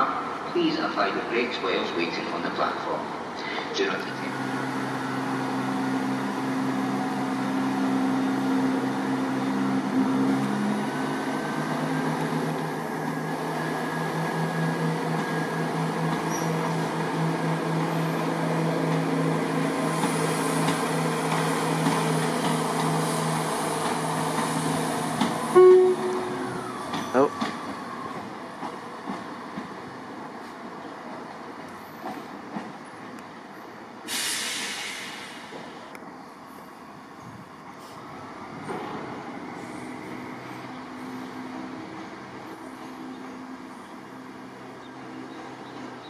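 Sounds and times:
diesel train engines pulsing: 0.0s - 46.0s
short loud tone: 25.5s - 26.6s.

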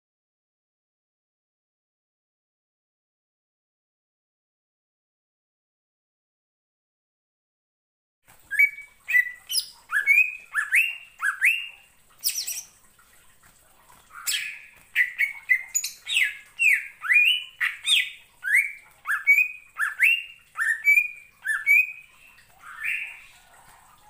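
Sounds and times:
bird whistled song: 8.5s - 12.7s, 14.2s - 23.4s
harsh scratchy bird calls: 8.5s - 12.8s, 14.1s - 23.9s.

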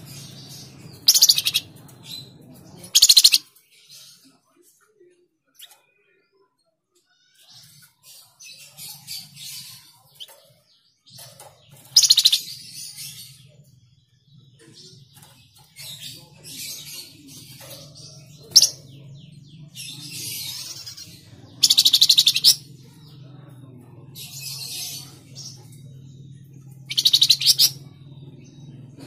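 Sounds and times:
bird rattling trills: 0.0s - 2.3s, 2.9s - 3.4s, 8.3s - 13.4s, 14.9s - 18.9s, 19.8s - 22.7s, 26.6s - 28.2s
songbird chirping: 0.0s - 29.0s.

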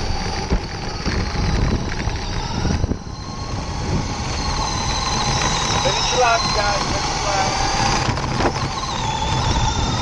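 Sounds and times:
rc car motor whine: 0.0s - 10.0s.

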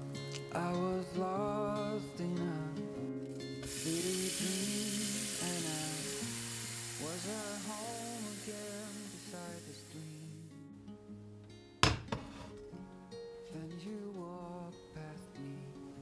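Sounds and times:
gentle background music: 0.0s - 16.0s
tap water running into saucepan: 3.6s - 10.2s.

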